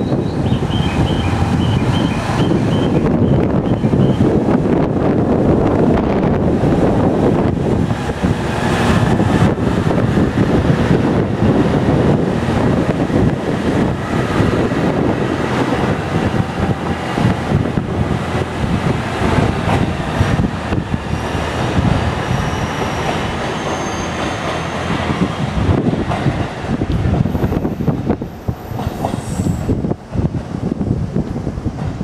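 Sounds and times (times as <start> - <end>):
diesel railcar engine: 0.0 - 32.0
train wheels clattering over rails: 6.5 - 32.0.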